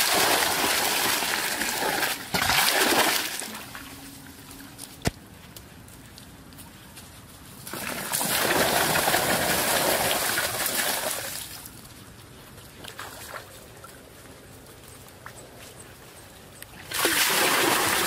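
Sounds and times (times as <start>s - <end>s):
water splashing into muddy pool: 0.0s - 3.8s, 7.7s - 11.6s, 16.9s - 18.0s.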